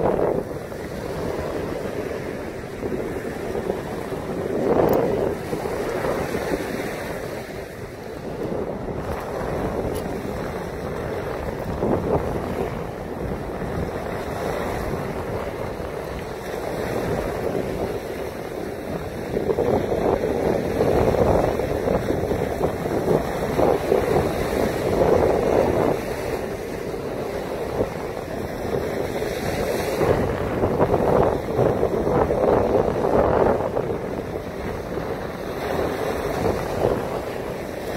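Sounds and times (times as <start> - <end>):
waves on a pebble shore: 0.0 - 37.9
wind buffeting microphone: 0.0 - 37.9.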